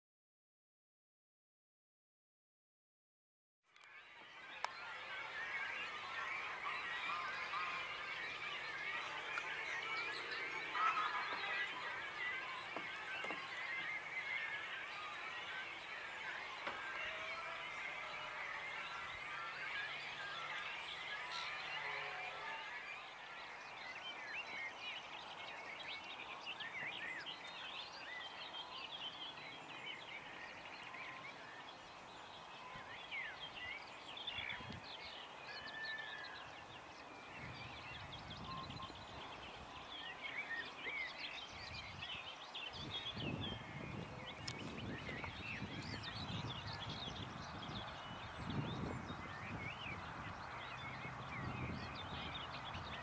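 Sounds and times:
songbirds chirping and warbling: 0:03.7 - 0:53.0
steady outdoor hiss: 0:03.8 - 0:53.0
wind buffeting microphone: 0:37.3 - 0:39.9, 0:41.3 - 0:53.0.

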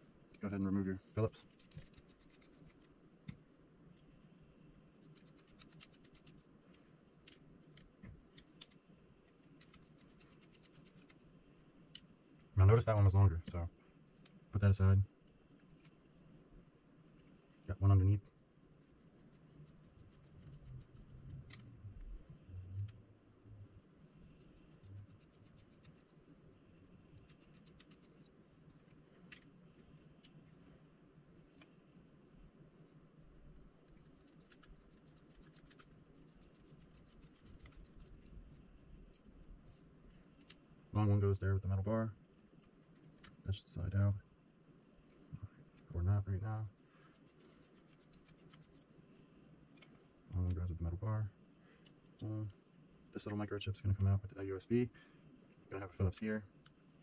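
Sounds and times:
screwdriver ticks and scratches: 0:01.4 - 0:03.0, 0:05.0 - 0:11.2, 0:18.8 - 0:21.8, 0:24.4 - 0:26.2, 0:27.2 - 0:29.5, 0:33.9 - 0:40.6, 0:47.1 - 0:48.9.

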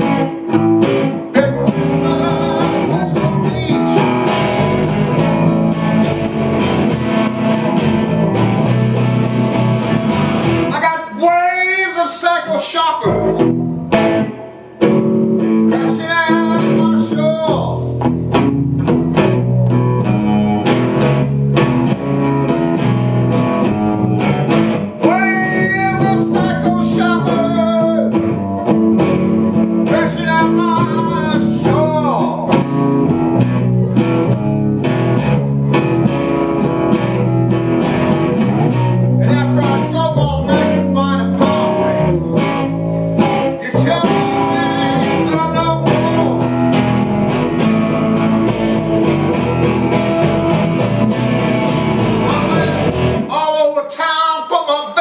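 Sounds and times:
electric bass line: 0:00.0 - 0:10.8, 0:13.1 - 0:53.3
electric guitar lead notes: 0:00.0 - 0:10.8, 0:13.0 - 0:53.3.

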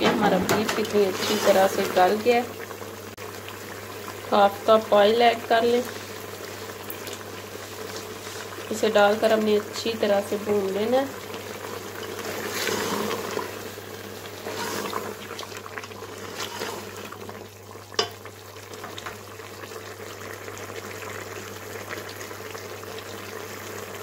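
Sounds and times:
meat sizzling in oil: 0:00.7 - 0:24.0
spatula scraping pot: 0:12.0 - 0:13.6, 0:14.3 - 0:17.2.

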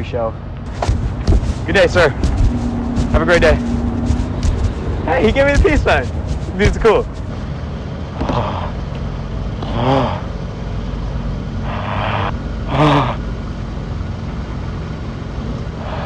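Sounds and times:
car engine idling: 0:00.6 - 0:09.7.

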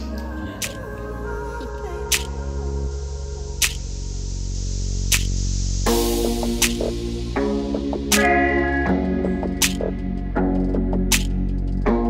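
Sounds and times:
sustained music chords: 0:00.0 - 0:12.0
sharp percussive hit: 0:08.1 - 0:08.9, 0:09.6 - 0:10.0.

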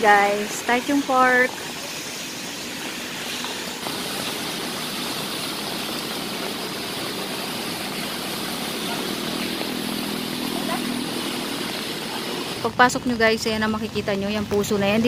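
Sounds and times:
rain hiss: 0:00.0 - 0:15.0
traffic on wet streets: 0:02.8 - 0:15.0.

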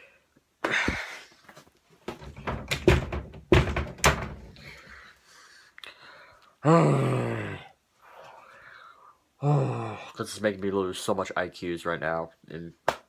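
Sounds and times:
hard thumps and knocks: 0:02.0 - 0:04.6.

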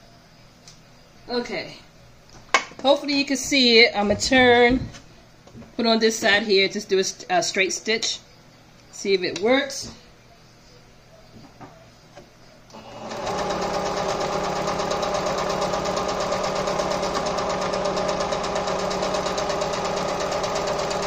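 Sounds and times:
sewing machine stitching: 0:12.8 - 0:21.0.

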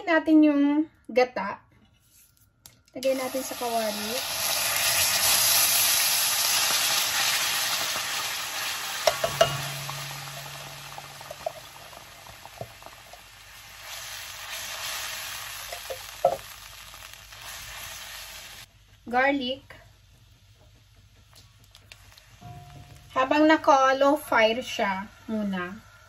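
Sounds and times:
coconut milk sizzling in a wok: 0:03.0 - 0:26.0
spatula knocking against wok: 0:09.0 - 0:11.8.

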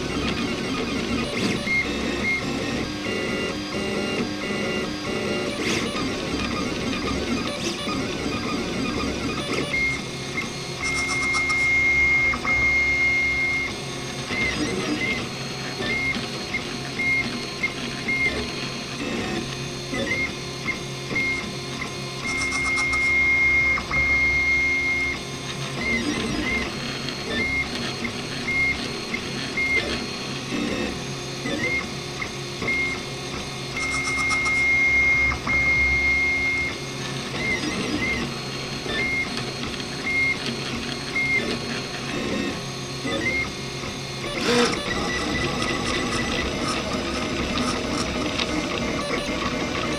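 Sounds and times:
stepper motors whining: 0:00.0 - 0:49.9
stepper motor chirps: 0:10.8 - 0:13.7, 0:33.7 - 0:39.3.

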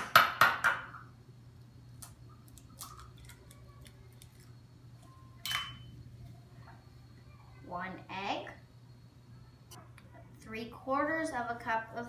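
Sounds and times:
eggshell crackling: 0:01.9 - 0:05.1.

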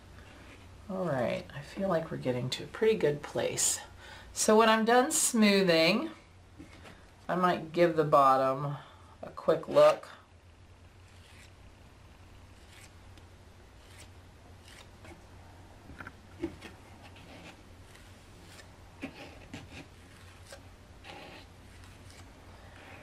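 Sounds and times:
low steady hum: 0:00.0 - 0:23.0
metal tool scraping clay: 0:11.0 - 0:11.6, 0:16.6 - 0:23.0.

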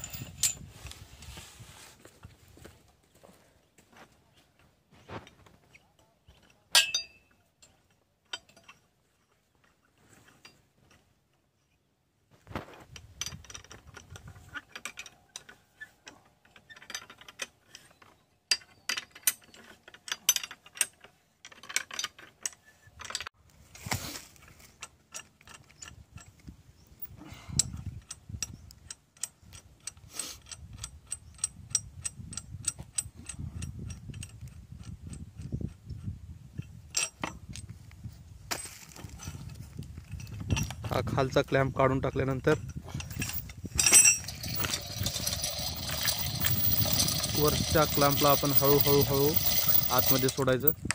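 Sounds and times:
chain hoist clicking: 0:43.0 - 0:50.9.

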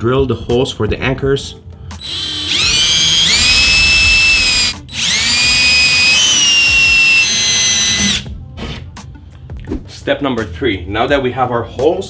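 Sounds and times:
cordless drill whining: 0:02.0 - 0:08.3.

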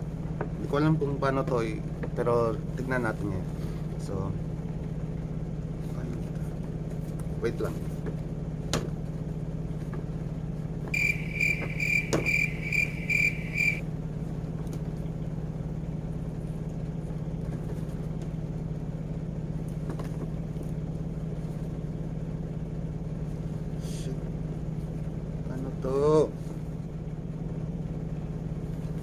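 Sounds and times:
steady low hum: 0:10.5 - 0:18.0
high pitched toy chirp: 0:11.0 - 0:13.8.

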